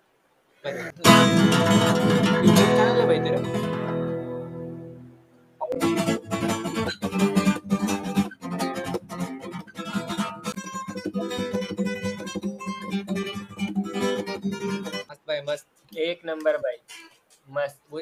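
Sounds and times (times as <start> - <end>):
acoustic guitar strumming chords: 1.0 - 15.1.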